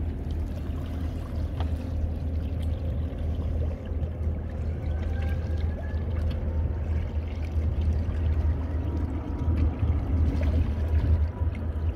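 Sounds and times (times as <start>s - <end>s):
low rumble: 0.0s - 11.9s
water splashing against boat hull: 0.0s - 11.9s.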